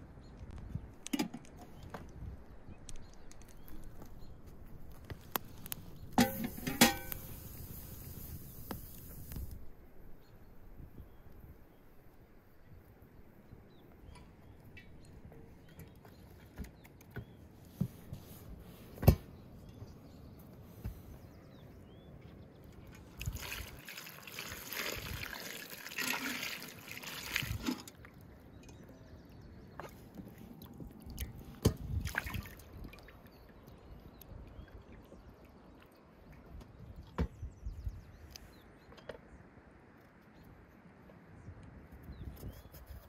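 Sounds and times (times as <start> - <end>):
water splashing and trickling: 22.6 - 37.4.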